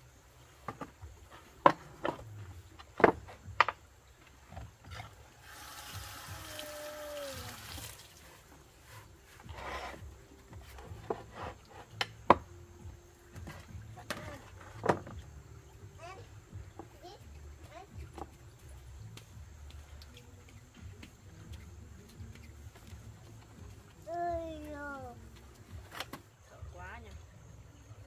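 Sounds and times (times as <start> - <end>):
rush of water: 5.4 - 8.6.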